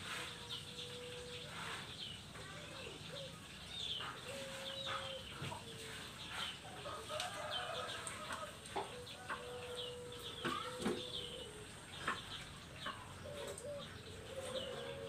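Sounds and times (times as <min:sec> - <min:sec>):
small birds chirping: 0:00.0 - 0:15.0
dove cooing: 0:04.1 - 0:05.8, 0:08.8 - 0:12.4, 0:13.0 - 0:15.0.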